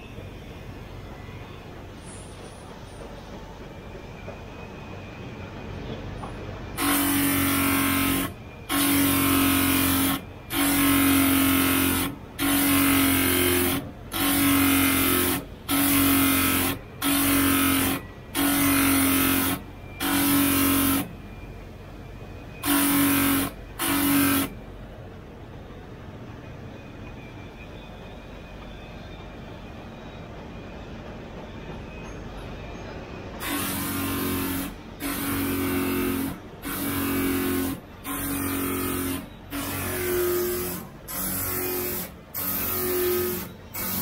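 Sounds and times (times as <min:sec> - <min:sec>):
wheel motor humming: 0:32.4 - 0:44.0.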